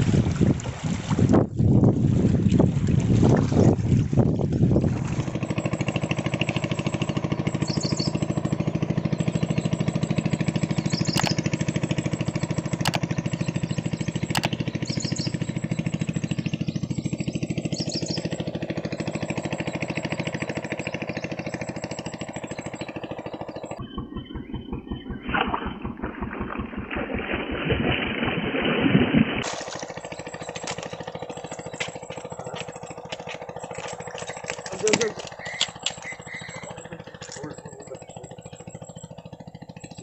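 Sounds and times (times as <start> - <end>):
engine running steadily: 0.0 - 40.0
sharp clicks: 5.6 - 17.2, 29.4 - 39.0.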